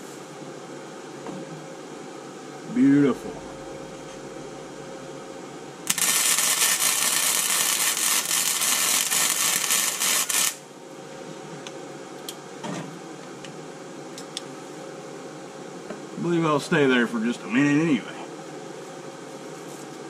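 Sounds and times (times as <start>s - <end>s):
welder arc crackling: 5.8s - 10.7s.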